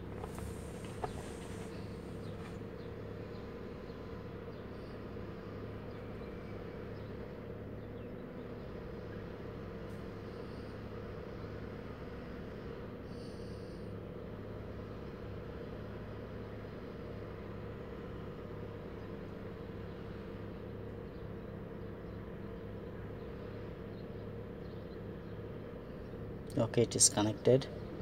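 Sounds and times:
car interior hum: 0.0s - 2.8s.

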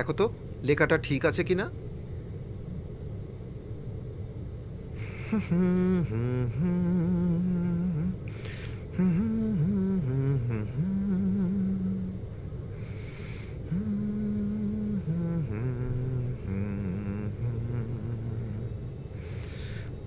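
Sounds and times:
low room rumble: 0.0s - 20.0s
person humming a slow tune: 4.9s - 20.0s
breathy intake: 8.3s - 8.9s, 12.8s - 14.0s.

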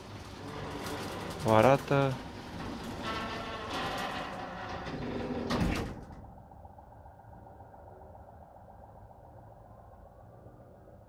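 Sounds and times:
garage door clunk: 0.0s - 6.2s
garage door opener rumbling: 0.0s - 6.3s.

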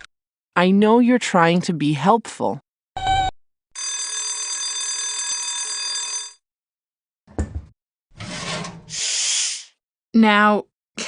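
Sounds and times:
oven door clunk: 7.3s - 8.9s
steam hissing: 8.9s - 9.7s.

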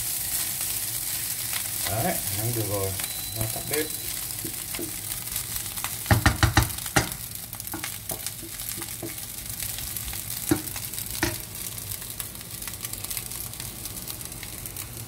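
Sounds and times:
rice sizzling in frying pan: 0.0s - 15.0s
spatula knocking on pan: 4.4s - 5.0s, 6.0s - 9.3s, 10.5s - 11.4s.

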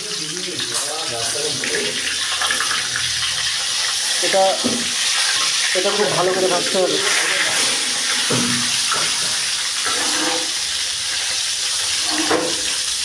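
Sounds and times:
fish sizzling in hot oil: 0.0s - 13.0s
metal spatula turning food: 7.0s - 10.8s.

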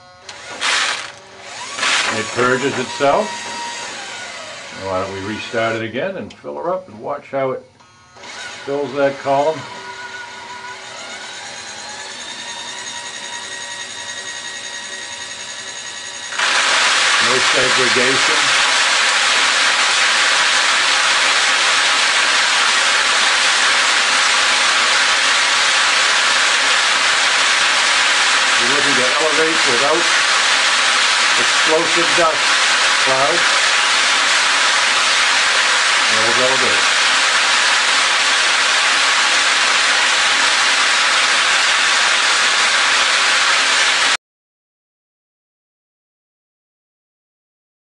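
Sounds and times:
granular material showering into bucket: 16.3s - 44.2s
seed pouring with steady hiss: 16.4s - 44.0s.

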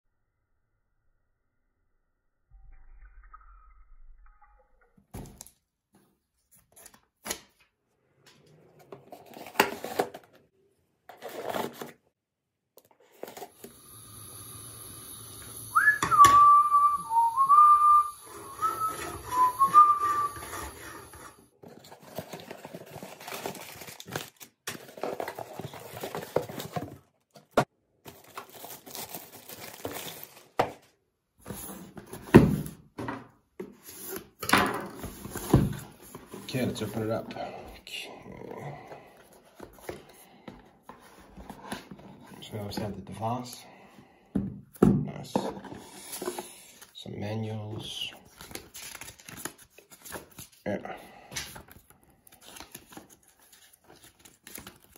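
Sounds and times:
high whistling tune: 15.7s - 21.0s.

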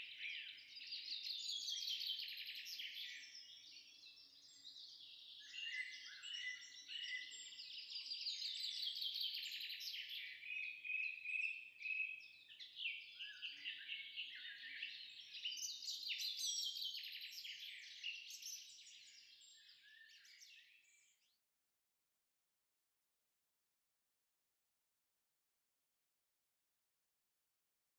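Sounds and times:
birds chirping and singing: 0.0s - 21.4s.

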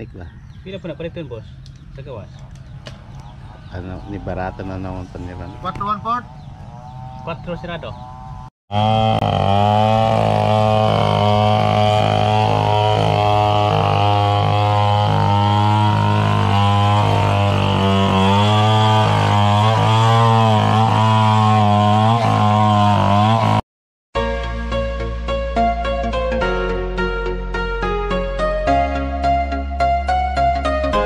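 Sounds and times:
chainsaw engine idling: 8.7s - 23.5s.

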